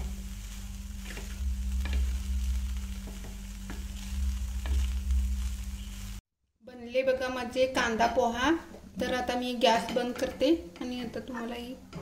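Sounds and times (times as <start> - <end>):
low hum: 0.0 - 6.2
wooden spatula scraping a pan: 0.0 - 6.2.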